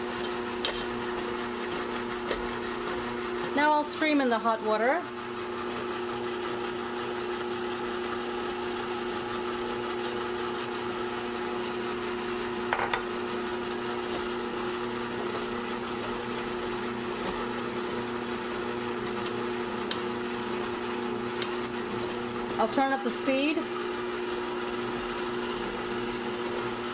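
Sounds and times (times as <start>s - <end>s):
stand mixer motor hum: 0.0s - 26.9s.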